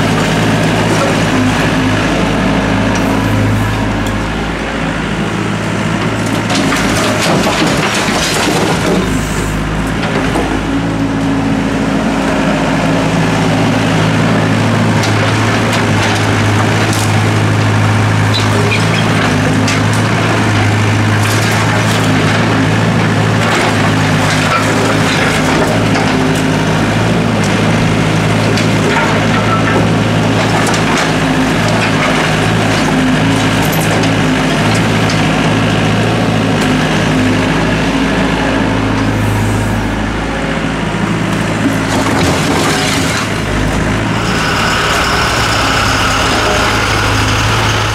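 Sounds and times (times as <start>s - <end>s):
excavator diesel engine running: 0.0s - 47.9s
bucket scraping through rubble: 41.7s - 44.7s.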